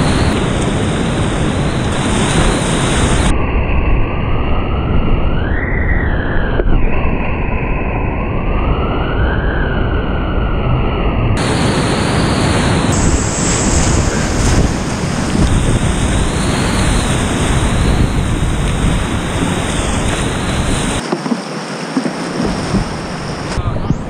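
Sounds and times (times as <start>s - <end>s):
wind buffeting microphone: 0.0s - 3.3s, 11.4s - 24.0s
whitewater rapids rushing: 11.4s - 23.6s.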